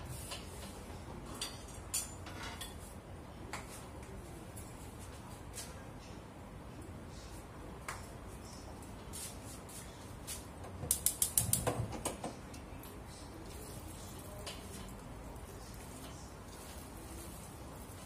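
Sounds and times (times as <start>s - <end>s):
spark igniter clicking rapidly: 10.9s - 11.7s.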